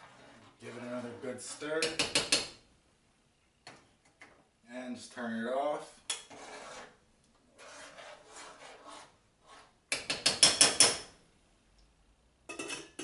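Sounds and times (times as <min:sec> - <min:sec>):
spoon stirring thick sauce: 0:06.1 - 0:10.4
spoon tapping metal pot: 0:09.9 - 0:11.1, 0:12.5 - 0:13.0.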